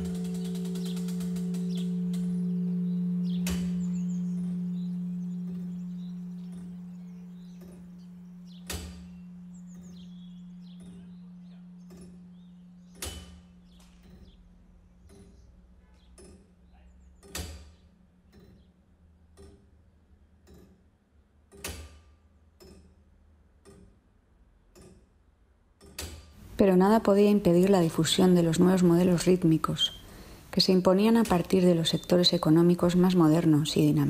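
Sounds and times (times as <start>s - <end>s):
low bell tone: 0.0s - 14.7s, 30.9s - 34.0s.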